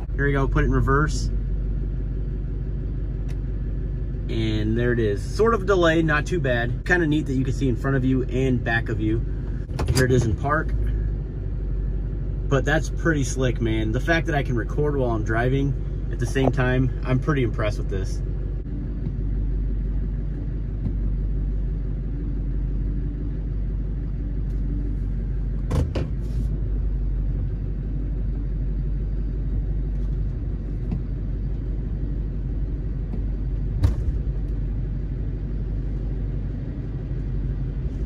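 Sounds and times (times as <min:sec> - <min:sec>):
diesel engine rumbling: 0:00.0 - 0:38.0.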